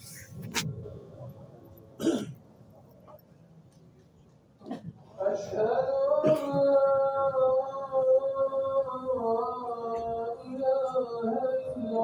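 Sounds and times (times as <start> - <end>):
man chanting: 5.2 - 12.0.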